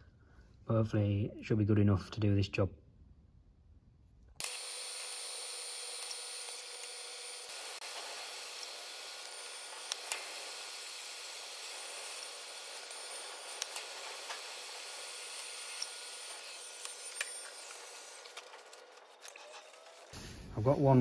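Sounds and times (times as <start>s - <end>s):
welding arc hissing: 4.4s - 20.4s.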